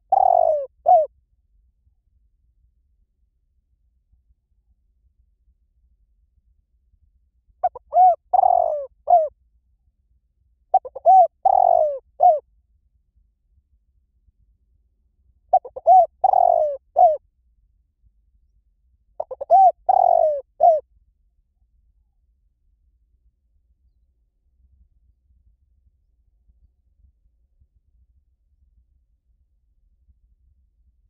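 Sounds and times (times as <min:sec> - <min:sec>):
dove cooing: 0:00.0 - 0:01.1, 0:07.6 - 0:09.3, 0:10.7 - 0:12.4, 0:15.5 - 0:17.2, 0:19.2 - 0:20.8.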